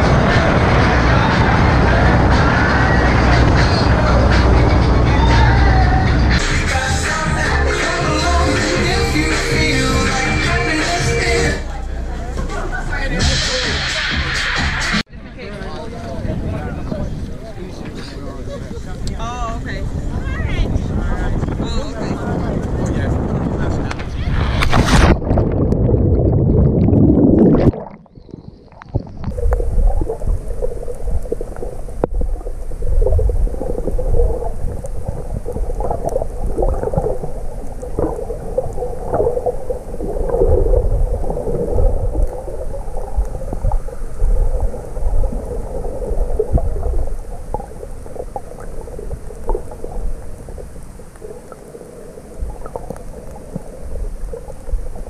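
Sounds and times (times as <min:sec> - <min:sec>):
muffled underwater rumble and gurgling: 0:00.0 - 0:06.4, 0:15.8 - 0:55.0
water splashing against camera: 0:20.6 - 0:55.0.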